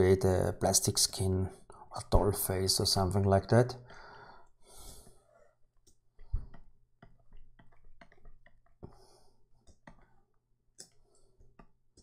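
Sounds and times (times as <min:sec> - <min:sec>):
mouse and keyboard clicking: 0:09.6 - 0:10.2.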